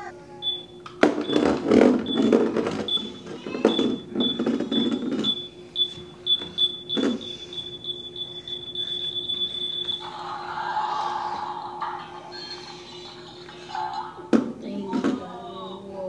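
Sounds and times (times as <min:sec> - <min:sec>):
toy robot beeping: 0:02.1 - 0:05.4.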